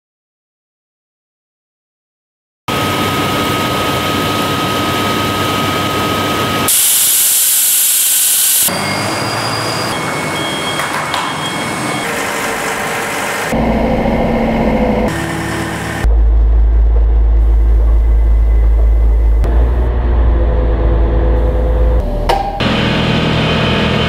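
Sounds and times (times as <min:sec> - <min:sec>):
machinery running: 0:02.7 - 0:24.0
loud hiss: 0:06.7 - 0:08.7
excavator diesel rumble: 0:08.8 - 0:24.0.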